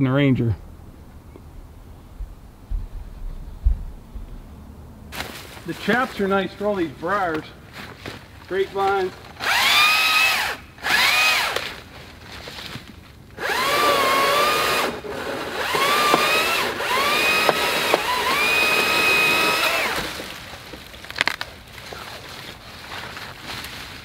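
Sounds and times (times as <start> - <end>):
battery chainsaw whining: 9.4 - 11.6, 13.4 - 20.3.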